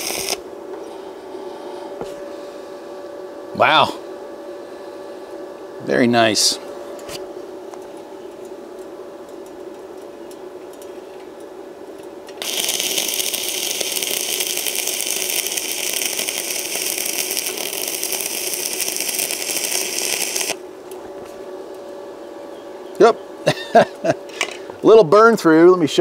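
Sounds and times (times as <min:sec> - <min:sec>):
welding arc crackling: 0:00.0 - 0:00.4, 0:11.8 - 0:21.1
welder humming: 0:00.0 - 0:26.0.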